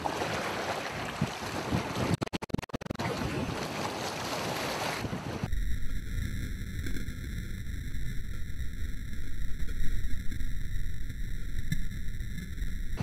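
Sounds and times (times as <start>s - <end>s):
waves: 0.0s - 5.6s.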